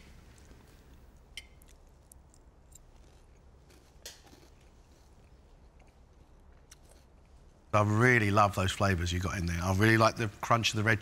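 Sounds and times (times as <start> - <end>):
quiet chewing: 0.0 - 7.6
low room hum: 0.0 - 11.0.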